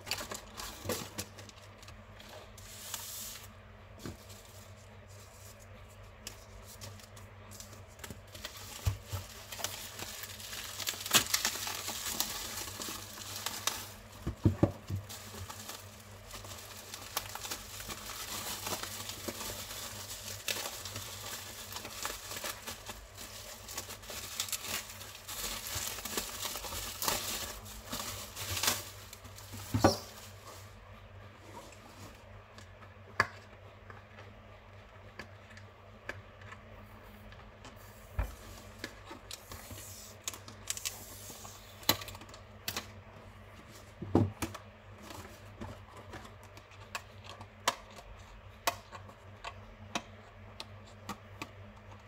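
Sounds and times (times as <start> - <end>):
plastic wrapping crinkling: 0.0 - 3.5, 4.1 - 30.8.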